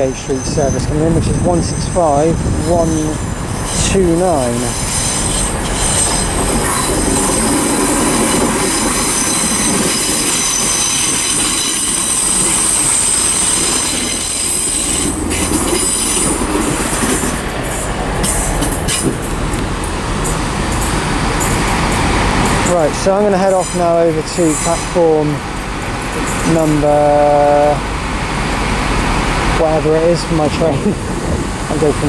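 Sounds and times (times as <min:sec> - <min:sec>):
train brake squeal: 0:00.0 - 0:16.4, 0:23.3 - 0:25.4
train wheels clicking and knocking: 0:02.7 - 0:32.0.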